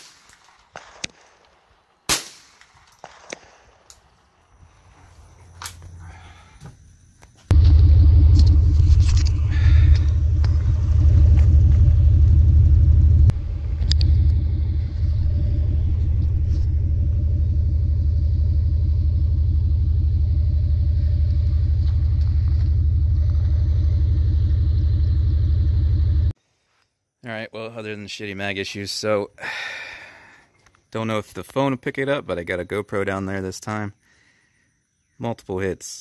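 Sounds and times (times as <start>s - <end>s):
low rumble with hum: 7.4s - 26.4s.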